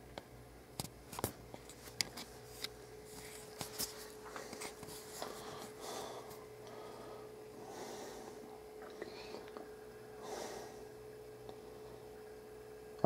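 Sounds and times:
camera handling rubbing: 1.2s - 5.2s.

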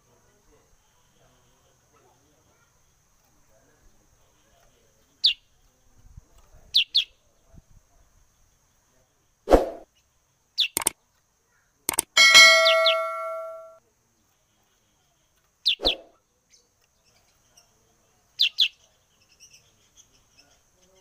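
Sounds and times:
bird chirping: 10.6s - 11.0s, 11.9s - 13.8s
click: 11.9s - 12.2s
bell-like ding: 12.0s - 13.8s.

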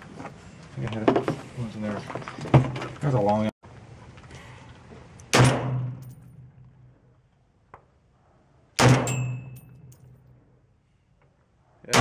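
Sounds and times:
rifle shots: 5.3s - 6.0s, 8.8s - 9.6s.

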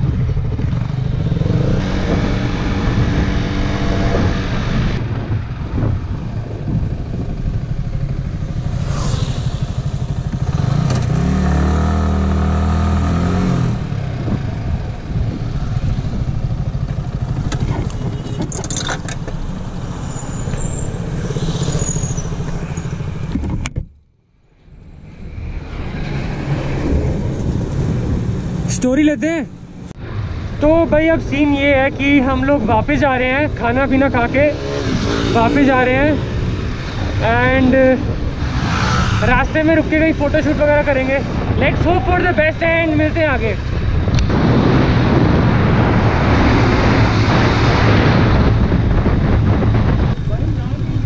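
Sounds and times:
motorcycle engine running: 0.0s - 19.8s.

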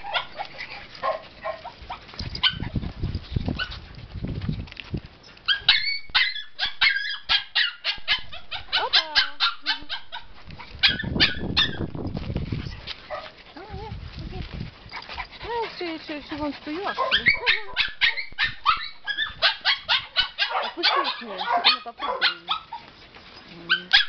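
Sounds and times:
dog barking: 1.0s - 1.7s, 5.5s - 11.8s, 16.9s - 22.8s, 23.7s - 24.0s
dog drawn-out calls: 5.5s - 11.8s, 16.4s - 23.0s.

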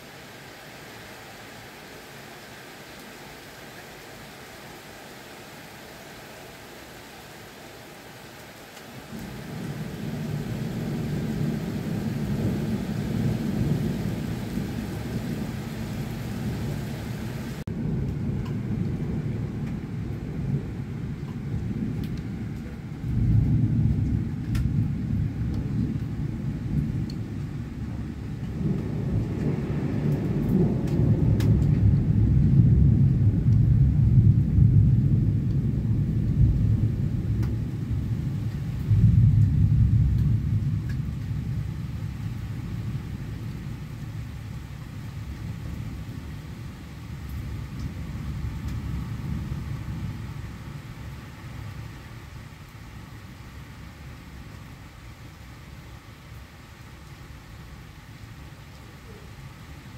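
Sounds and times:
rain hiss: 0.0s - 59.9s
thunder rumbling: 9.0s - 53.2s
drip ticks: 27.0s - 27.2s, 40.1s - 41.3s, 47.2s - 48.0s.

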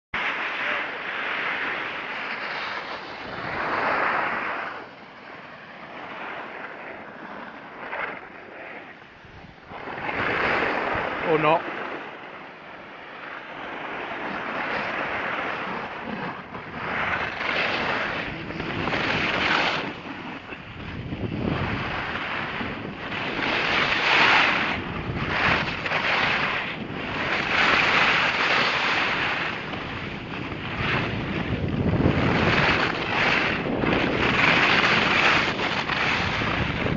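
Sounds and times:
wind on microphone: 0.2s - 36.9s
skis sliding over snow: 14.2s - 36.9s.

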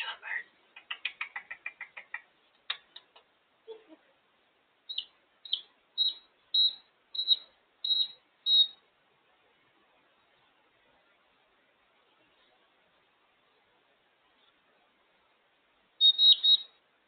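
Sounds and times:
parrot clicking: 0.8s - 3.2s
parrot beeping: 4.9s - 8.8s, 16.0s - 16.7s.

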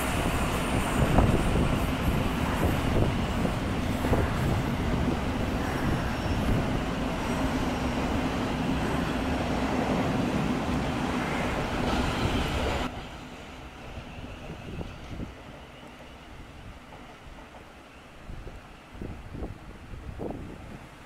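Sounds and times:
train wheels rumbling on rails: 0.0s - 21.0s.

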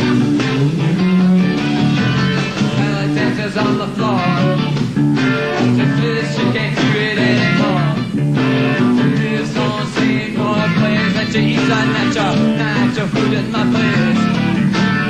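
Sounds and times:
electric guitar: 0.0s - 15.0s
keyboards: 0.0s - 15.0s
live rock band: 0.0s - 15.0s
man singing: 2.7s - 4.8s, 5.6s - 14.5s.

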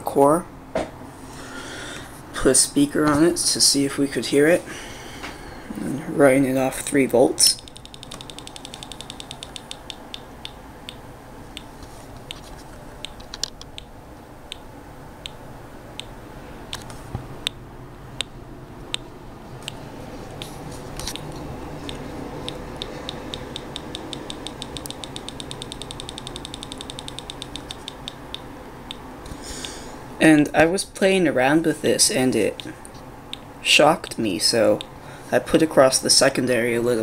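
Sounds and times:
small loudspeaker clicking: 7.5s - 15.4s, 16.0s - 17.6s, 20.4s - 29.8s, 32.5s - 35.0s.

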